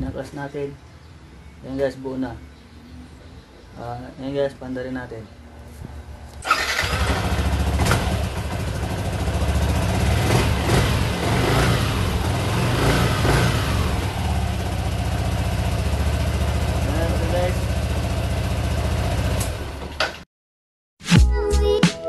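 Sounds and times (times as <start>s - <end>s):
scooter engine starting and running: 6.4s - 20.2s.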